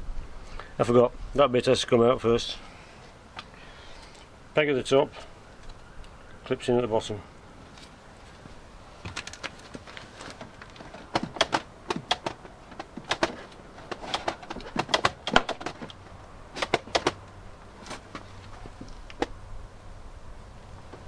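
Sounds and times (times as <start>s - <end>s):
plastic clips popping and snapping: 9.1s - 16.0s, 16.6s - 18.0s.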